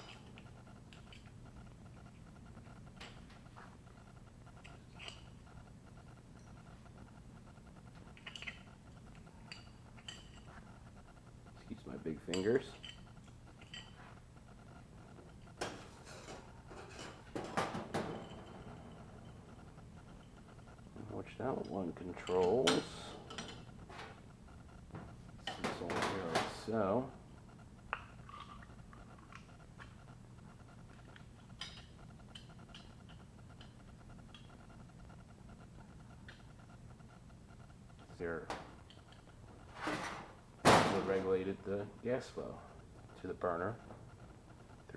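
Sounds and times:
low steady hum: 0.0 - 44.9
metal parts clicking and tapping: 8.0 - 10.5.

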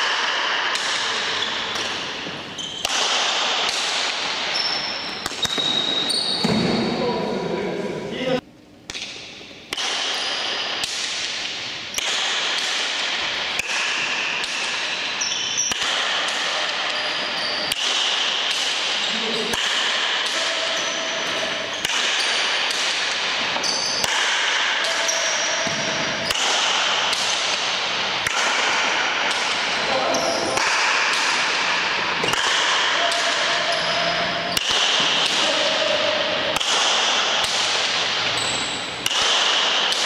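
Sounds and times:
wooden paddles striking ball: 8.9 - 38.4, 39.0 - 40.0
ball smacking wall and floor: 21.2 - 29.8.

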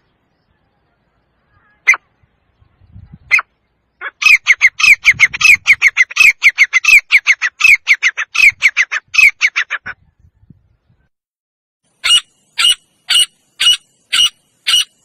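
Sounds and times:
francolin calling: 3.3 - 9.8, 11.9 - 15.0.

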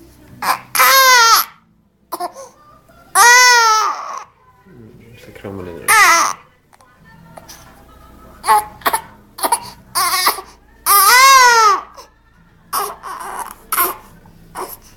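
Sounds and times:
baby crying: 0.4 - 4.4, 5.8 - 6.5, 8.4 - 14.9.

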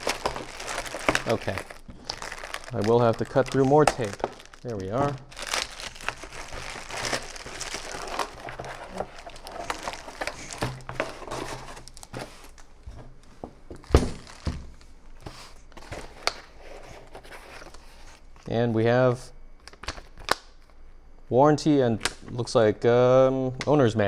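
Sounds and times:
plastic bags crinkling: 0.0 - 12.7, 13.7 - 14.9.

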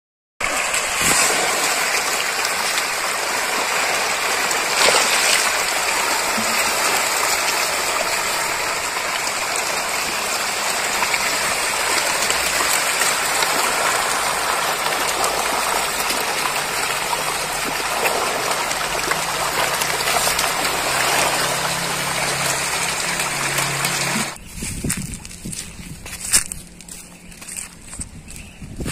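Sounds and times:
fish splashing and thrashing: 0.4 - 25.4.

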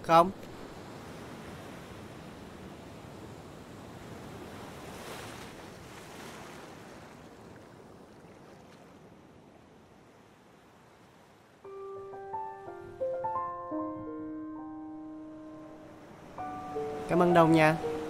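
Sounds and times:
waves breaking on beach: 0.0 - 11.7, 15.8 - 18.0.

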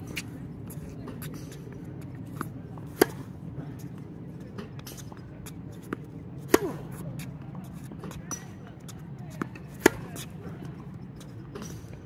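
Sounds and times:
low background noise: 0.0 - 12.0
tennis ball bouncing: 1.0 - 11.9
tennis ball struck by racket: 2.4 - 3.4, 5.8 - 7.3, 9.4 - 10.4.

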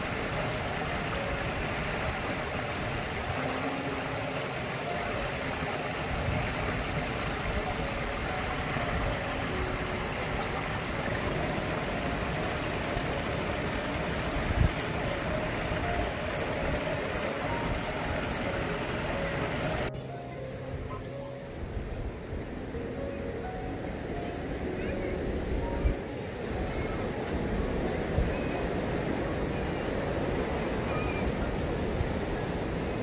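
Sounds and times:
waterfall splashing over rocks: 0.0 - 20.0.

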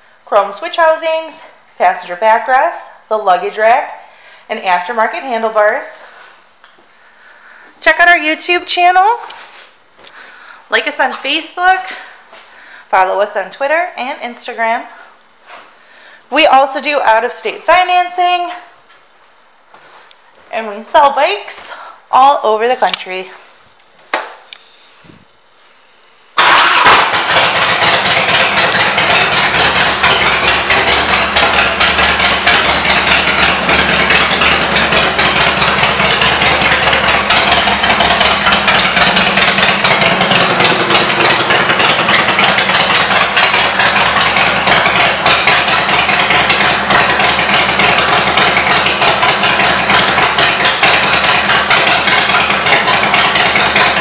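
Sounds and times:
motorcycle engine idling: 26.4 - 54.0.

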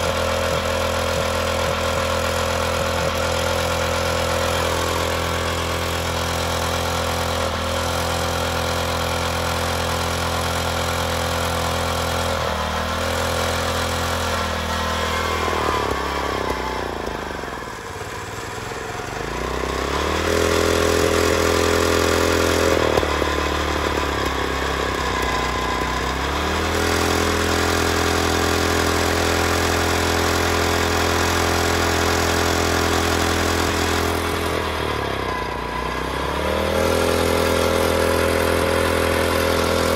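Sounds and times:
core drill boring into asphalt: 0.0 - 39.9.

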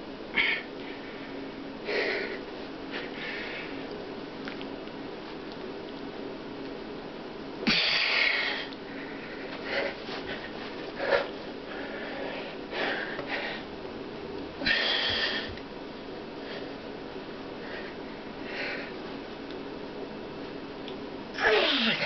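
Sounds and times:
man breathing forcefully: 7.7 - 13.7, 14.6 - 15.6.

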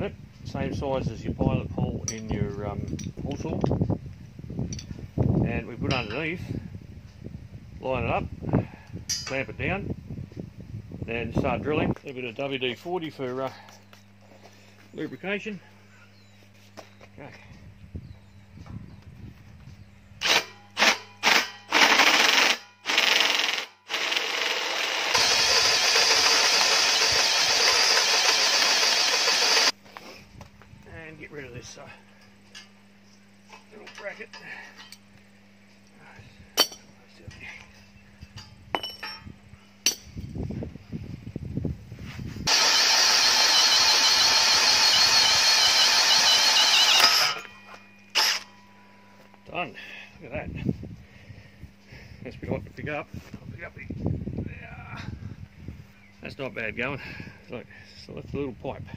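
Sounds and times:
drill hole saw cutting steel: 20.2 - 29.7, 42.5 - 48.5.

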